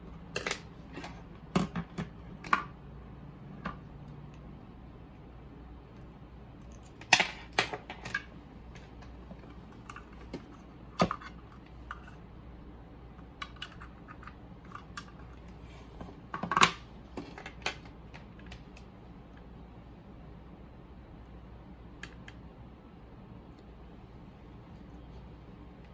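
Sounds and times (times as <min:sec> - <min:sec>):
plastic parts clicking and knocking: 0:00.3 - 0:02.8, 0:06.6 - 0:12.2, 0:16.3 - 0:18.9.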